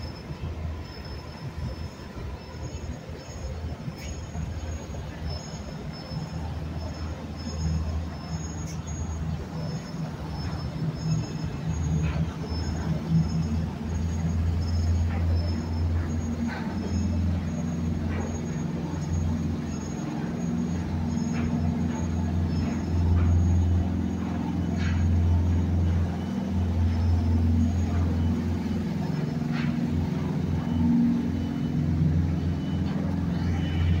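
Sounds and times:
low engine rumble: 0.0s - 34.0s.

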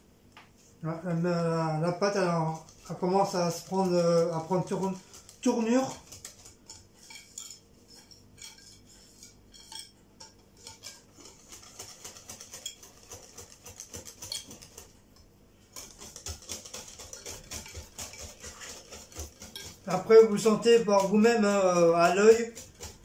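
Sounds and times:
utensil clinking in glass bowl: 2.6s - 14.9s, 15.8s - 23.0s.

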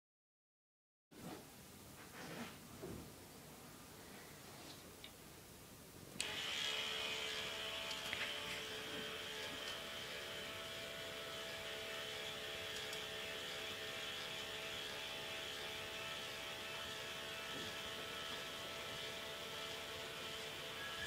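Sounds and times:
electric motor whirring: 6.2s - 21.0s.

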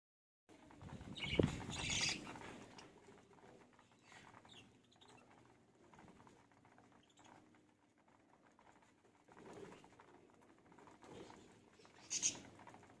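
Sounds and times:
birds pecking seed: 0.5s - 13.0s
birds chirping: 0.8s - 7.6s, 10.9s - 12.9s.

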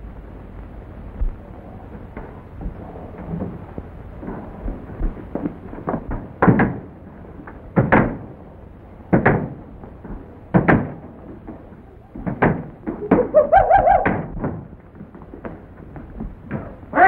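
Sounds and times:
wavering pulsing cry: 13.0s - 14.3s.

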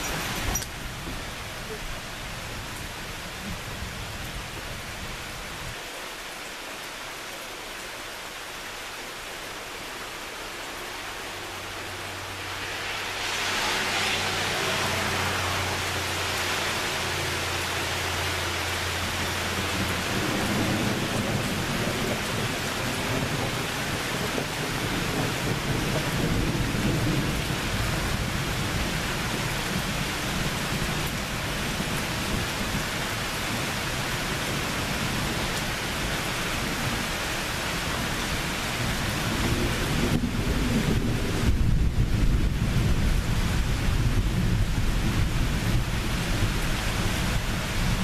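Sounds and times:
steady rain falling: 0.0s - 48.0s
thunder rumbling: 39.2s - 48.0s.

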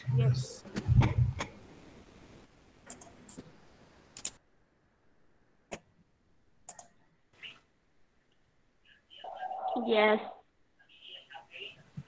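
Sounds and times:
computer mouse clicks: 2.8s - 3.5s, 4.1s - 4.4s, 6.6s - 7.0s.

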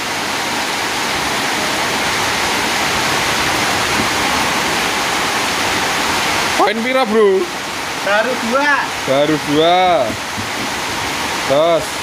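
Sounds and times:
heavy rain falling: 0.0s - 12.0s.

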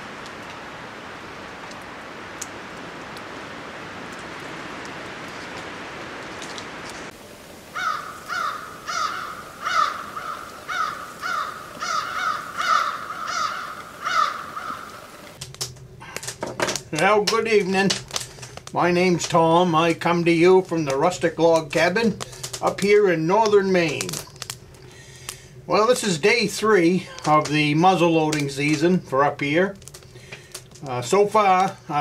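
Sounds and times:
steady hiss: 0.0s - 32.0s
crow cawing: 7.7s - 15.4s.

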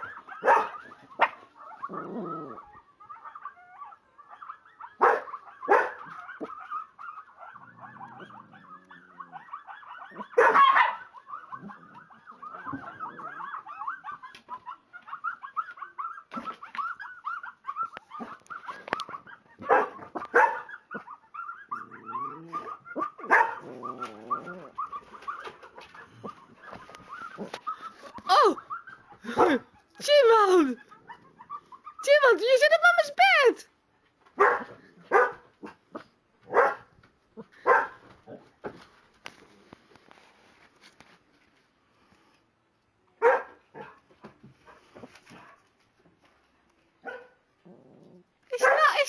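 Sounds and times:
wolves howling from speakers: 0.0s - 29.3s
dogs barking: 0.0s - 33.5s, 34.3s - 38.8s, 43.2s - 45.7s, 47.0s - 47.5s, 48.6s - 49.0s.

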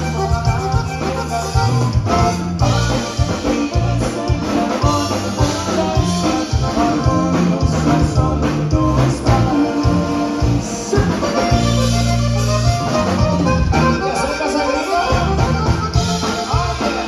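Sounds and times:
button accordion melody: 0.0s - 17.0s
live band music: 0.0s - 17.0s.

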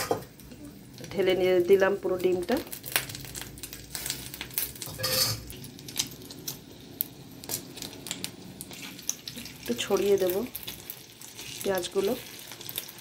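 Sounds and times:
egg sizzling in oil: 0.0s - 13.0s
spoon clinking and scraping pan: 4.9s - 5.5s.

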